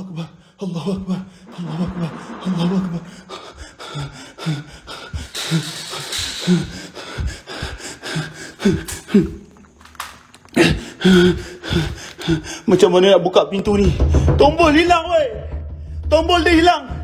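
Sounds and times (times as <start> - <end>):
man breathing hard: 0.0 - 9.7, 10.6 - 12.7.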